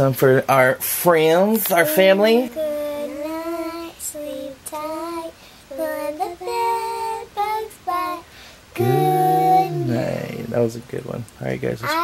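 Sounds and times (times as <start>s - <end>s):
girls singing together: 1.6s - 10.5s.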